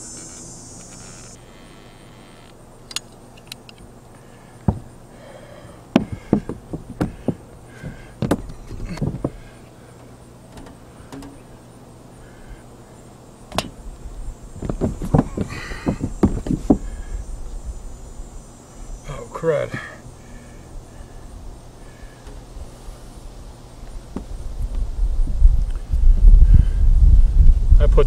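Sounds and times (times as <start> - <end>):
handling knocks and taps: 4.6 - 4.9, 5.9 - 9.4, 10.5 - 11.4, 14.6 - 16.9.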